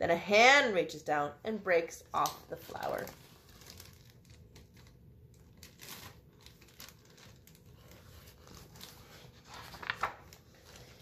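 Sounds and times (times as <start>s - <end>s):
paper pages rustling: 2.6s - 11.0s.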